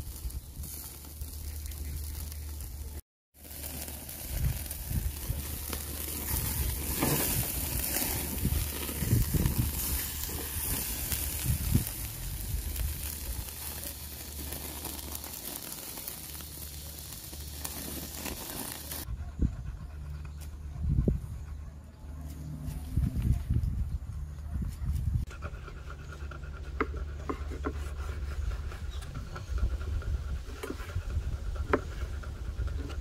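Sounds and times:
meat sizzling on grill: 0.0 - 19.1
low rumbling: 0.0 - 27.2
outdoor ambience: 0.0 - 33.0.

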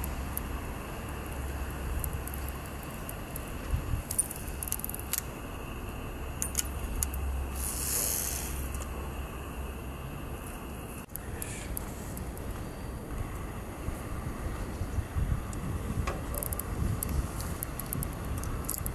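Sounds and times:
wind rumble on microphone: 0.0 - 7.6, 10.7 - 18.9
short hiss: 7.5 - 8.8
fishing tackle clicking: 16.4 - 18.9.

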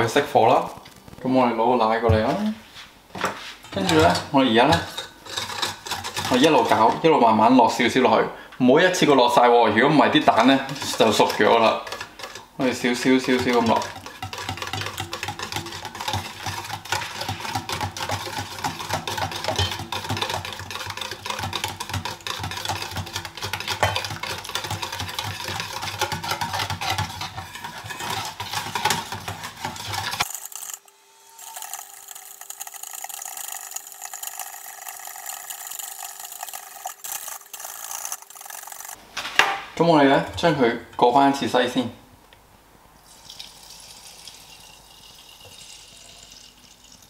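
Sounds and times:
whisk clattering against steel bowl: 3.8 - 7.0, 10.0 - 30.7, 31.6 - 39.0.

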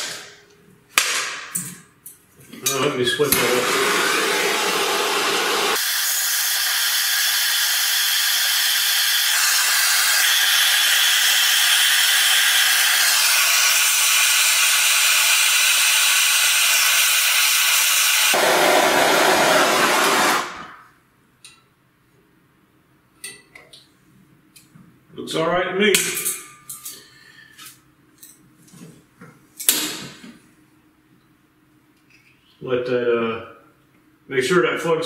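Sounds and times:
torch hissing: 3.3 - 20.8.

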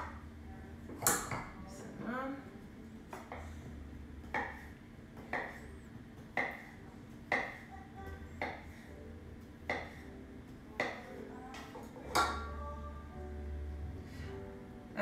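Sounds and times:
knife tapping on wooden board: 4.2 - 4.6, 5.2 - 5.6, 6.2 - 6.7, 7.3 - 7.6.

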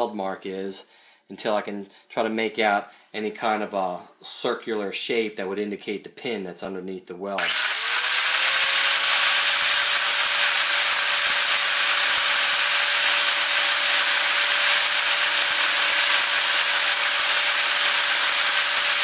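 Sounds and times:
angle grinder grinding metal: 7.4 - 19.0.

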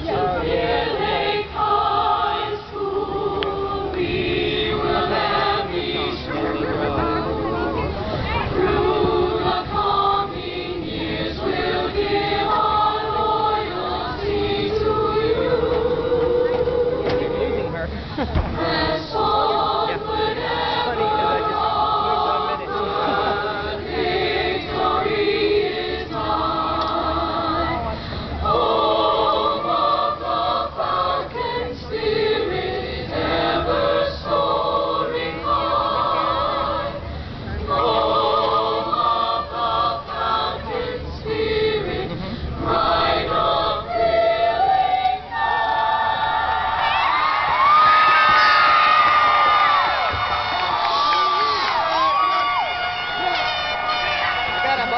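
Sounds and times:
choir singing in harmony: 0.0 - 54.9
singers breathing: 17.9 - 18.3, 27.9 - 28.4, 37.1 - 37.5.

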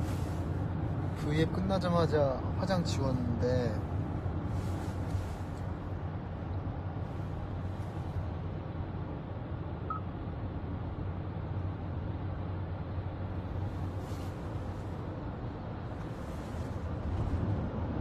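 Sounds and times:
road and engine rumble in car: 0.0 - 18.0.

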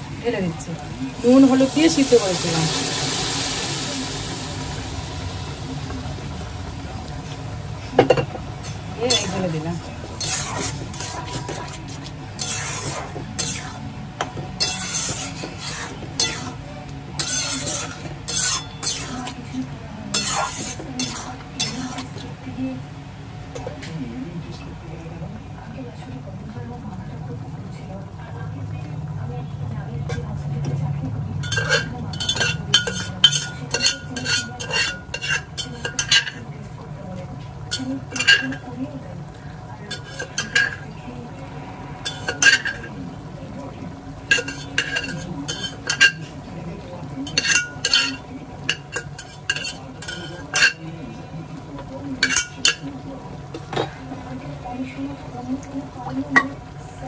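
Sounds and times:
food sizzling: 0.0 - 57.0
spatula scraping in a pan: 8.2 - 22.4, 31.4 - 36.5, 37.7 - 38.8, 39.4 - 41.3, 42.0 - 43.0, 44.2 - 51.0, 52.1 - 53.0.

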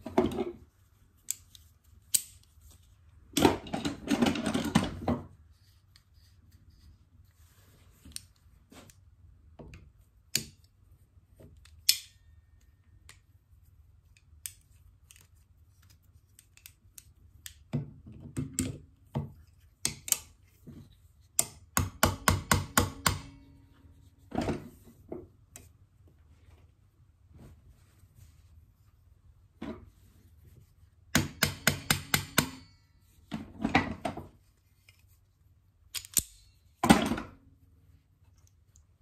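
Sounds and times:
tools clicking and knocking: 16.3 - 20.5, 21.4 - 23.5, 31.1 - 35.0, 35.9 - 37.3
sharp metal taps: 31.2 - 32.8.

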